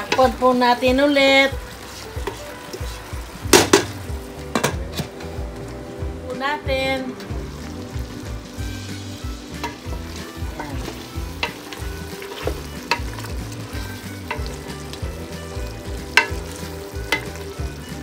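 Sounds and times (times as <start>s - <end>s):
chicken sizzling in a pot: 0.0s - 18.0s
wooden spoon knocking on pot: 15.5s - 17.4s.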